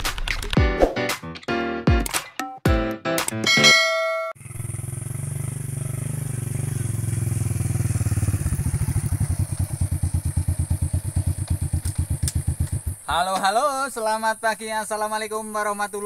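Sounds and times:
small motorcycle engine running: 0:04.4 - 0:13.1.

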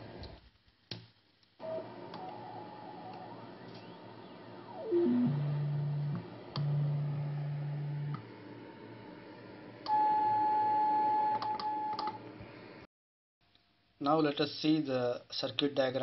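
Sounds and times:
radio beat-note tone: 0:04.5 - 0:08.1.

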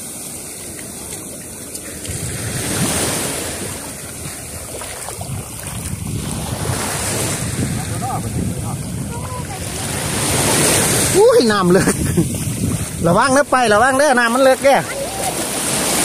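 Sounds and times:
sea waves washing on shore: 0:00.0 - 0:16.0
wind buffeting microphone: 0:01.8 - 0:14.2.

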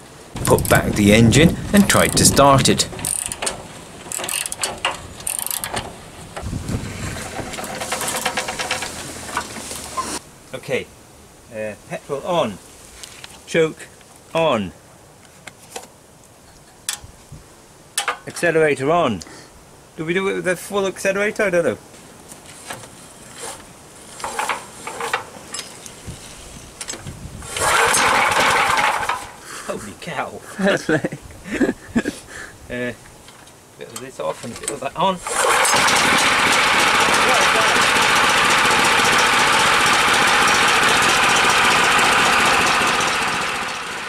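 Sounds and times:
petrol engine running loudly: 0:00.4 - 0:03.5, 0:27.5 - 0:29.3, 0:35.3 - 0:44.0
recoil starter cord pulled: 0:00.4 - 0:10.2, 0:22.7 - 0:25.7, 0:26.8 - 0:29.4, 0:34.6 - 0:44.0.

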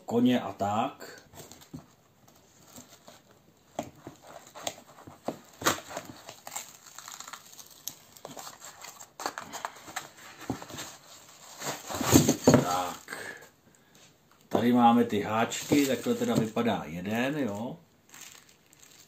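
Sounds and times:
packing tape crinkling and ripping: 0:04.2 - 0:13.2, 0:15.5 - 0:16.6, 0:17.2 - 0:19.0.

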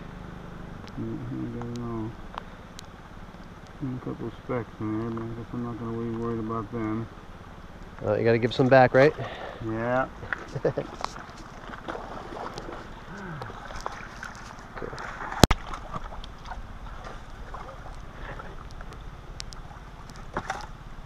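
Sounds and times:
creek water running over rocks: 0:00.1 - 0:21.0
small clicks: 0:01.6 - 0:03.8, 0:17.2 - 0:20.8.

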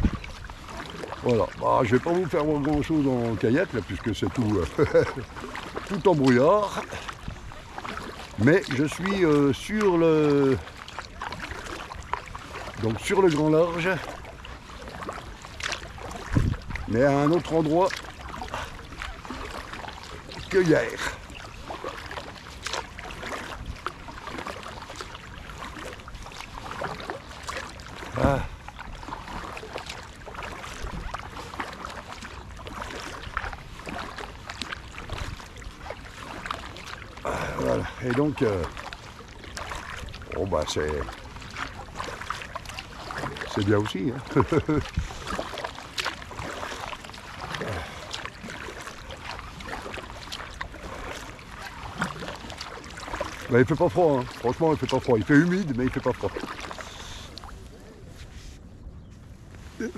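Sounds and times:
water splashes and drips: 0:00.0 - 0:58.6
paddle strokes through water: 0:00.0 - 0:59.9.

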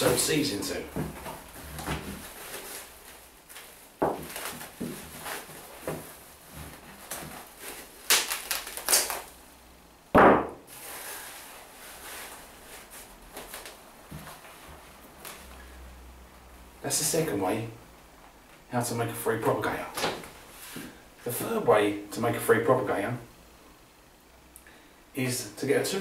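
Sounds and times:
cling film crackling pulls: 0:01.3 - 0:09.4
thump: 0:10.2 - 0:10.6.

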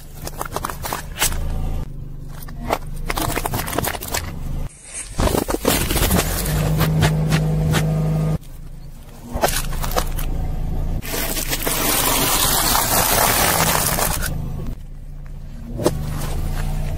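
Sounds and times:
tyre crushing dry pasta: 0:11.0 - 0:14.3.

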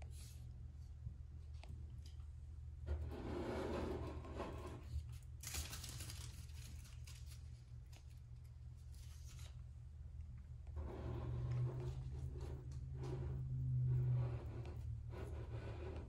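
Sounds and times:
steady low hum: 0:00.0 - 0:16.0
soft rustling and handling: 0:04.8 - 0:10.5.

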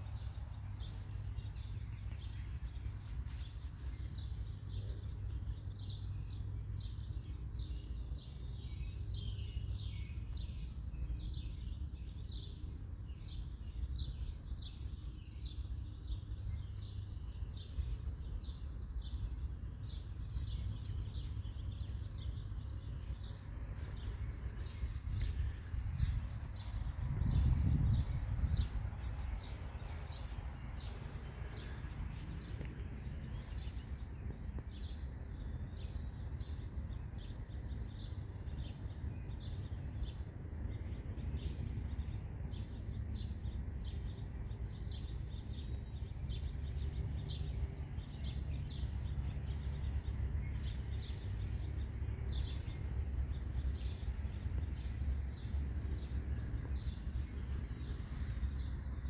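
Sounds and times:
birds chirping: 0:00.0 - 0:59.0
low rumble: 0:22.6 - 0:39.5.

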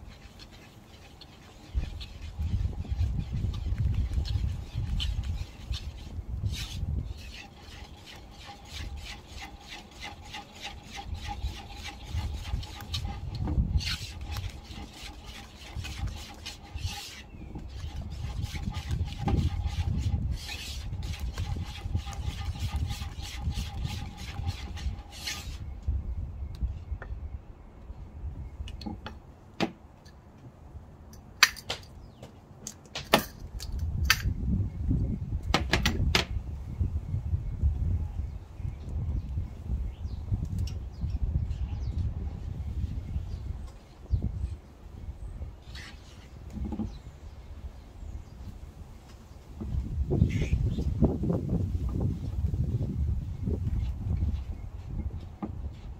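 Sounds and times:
whisk scraping wooden bowl: 0:00.0 - 0:25.7.

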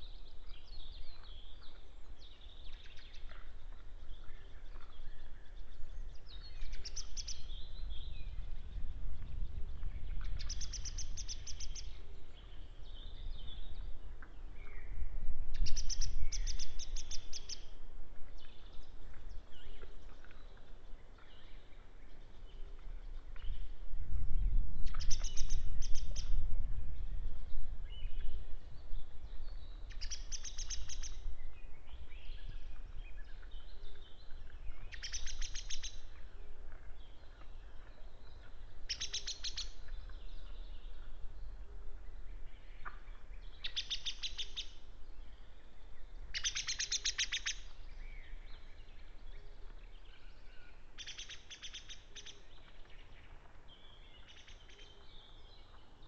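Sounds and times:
songbird trilling: 0:46.3 - 0:47.7.

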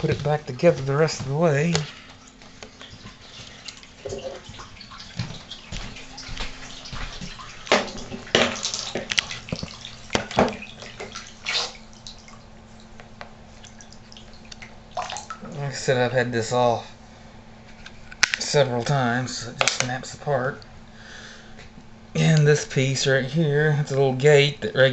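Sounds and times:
water splashing in bathtub: 0:00.0 - 0:16.8
faint steady hum: 0:00.0 - 0:24.9.

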